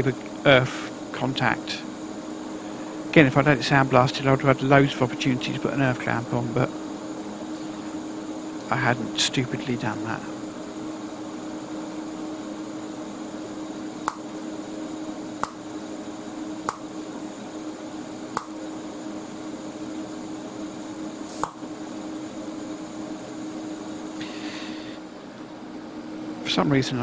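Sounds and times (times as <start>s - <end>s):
welder hum and hiss: 0.0s - 27.0s
sharp welding pops: 14.0s - 14.4s, 15.4s - 15.7s, 16.6s - 17.0s, 18.3s - 18.6s, 21.2s - 21.8s.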